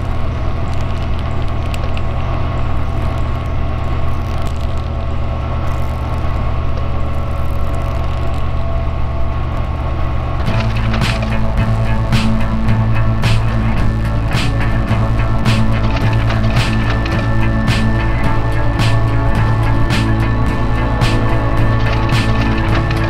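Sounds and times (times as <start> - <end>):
projector fan humming: 0.0 - 23.0
ticks: 10.4 - 23.0.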